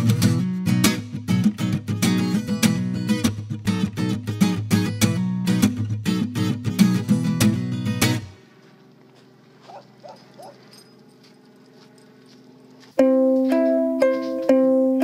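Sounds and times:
plucked ukulele music: 0.0 - 8.4, 12.9 - 15.0
faint dog barks: 9.6 - 10.8.

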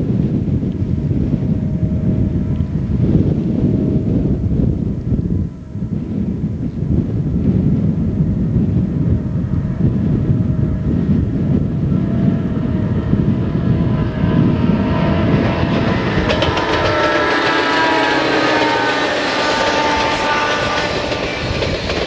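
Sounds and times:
diesel locomotive engines: 0.0 - 22.0
wind rumble on microphone: 0.0 - 22.0
wheels clattering on rails: 13.1 - 22.0.

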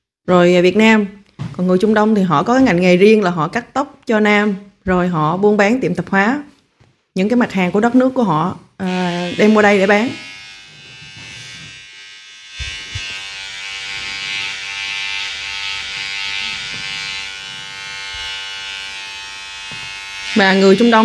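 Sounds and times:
electric hair clippers buzzing: 8.8 - 21.0.

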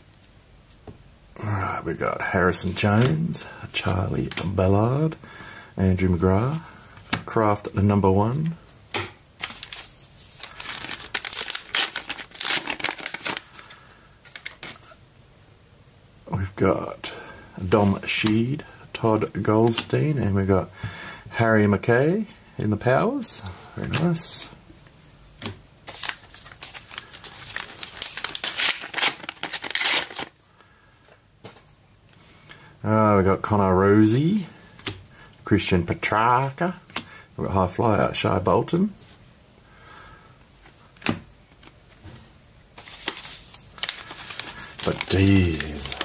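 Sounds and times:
wrapper crinkling: 9.4 - 15.0, 25.9 - 30.4, 42.8 - 46.0.

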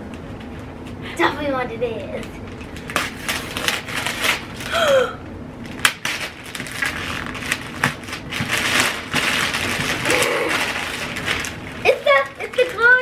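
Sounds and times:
wrapping paper crinkling: 2.4 - 4.8, 5.6 - 13.0
paper ripping: 2.8 - 4.7, 5.8 - 13.0.

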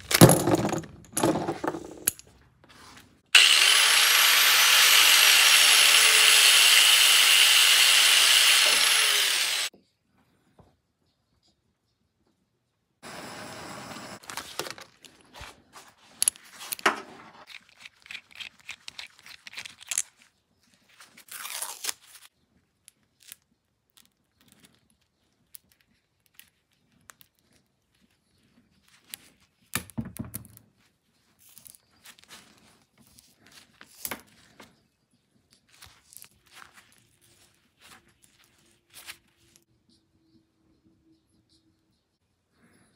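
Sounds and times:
tearing sounds: 17.4 - 22.3.

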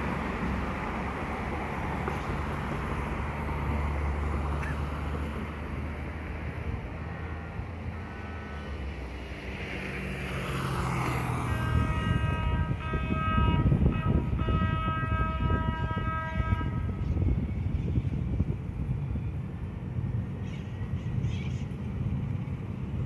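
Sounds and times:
trolley horn blasts: 11.3 - 17.4.

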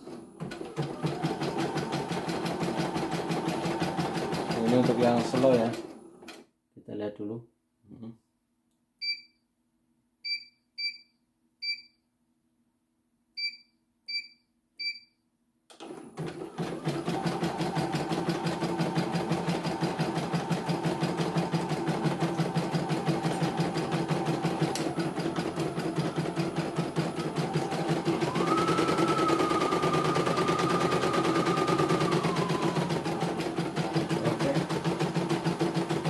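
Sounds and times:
embroidery machine stitching: 0.0 - 6.4, 15.7 - 36.0.

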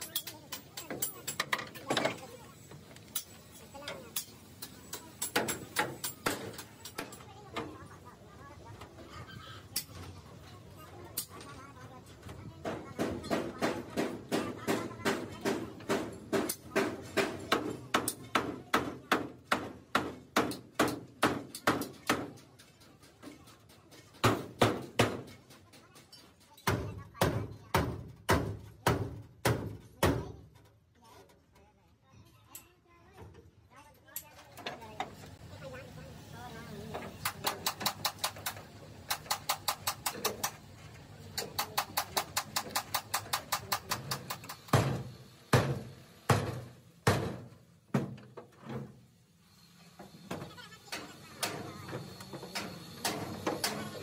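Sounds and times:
hammer tapping sheet metal: 37.2 - 40.6, 41.4 - 48.2.

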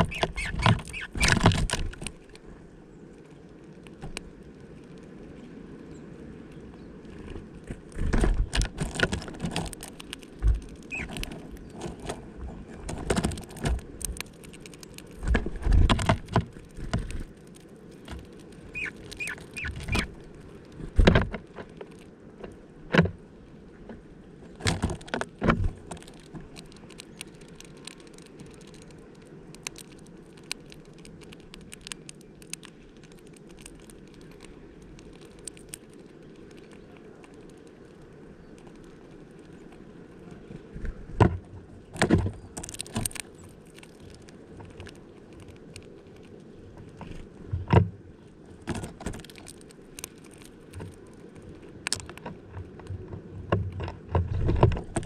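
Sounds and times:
high bird chirps: 0.0 - 1.3, 10.9 - 11.1, 18.7 - 20.1
birds pecking in a plastic feeder: 0.0 - 2.5, 3.1 - 23.1, 24.5 - 55.0.

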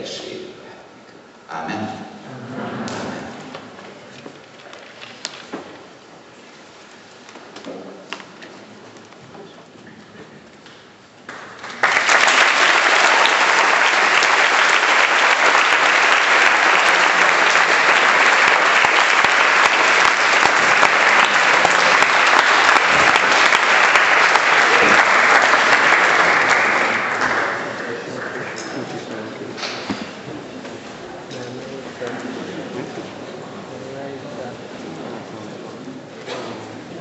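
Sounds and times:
audience applauding: 11.3 - 29.5.

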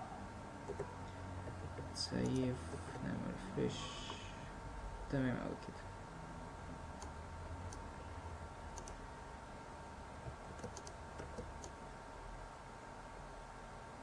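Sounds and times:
faint low hum: 0.0 - 14.0
mouse and keyboard clicks: 0.7 - 0.9, 8.8 - 9.0, 10.6 - 11.8.

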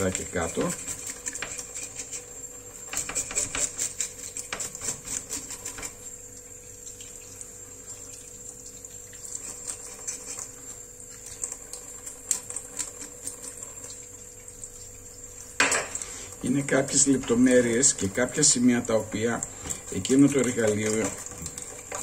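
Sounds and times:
knife scraping fish scales: 0.0 - 6.1, 9.3 - 10.8, 11.9 - 13.9
water in sink: 0.0 - 22.0.

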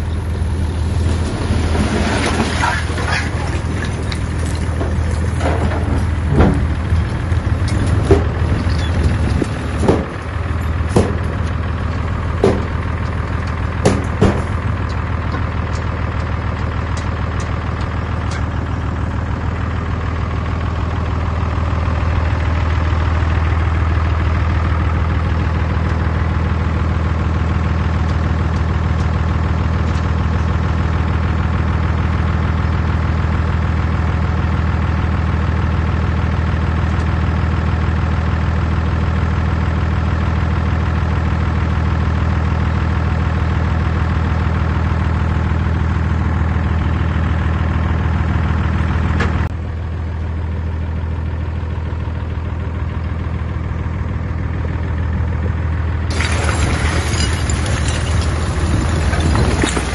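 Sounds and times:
bulldozer diesel engine running: 0.0 - 59.9.

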